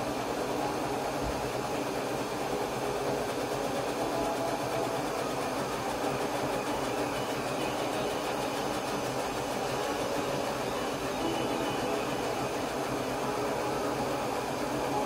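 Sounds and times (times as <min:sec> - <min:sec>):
laser cutter fans whooshing: 0:00.0 - 0:15.0.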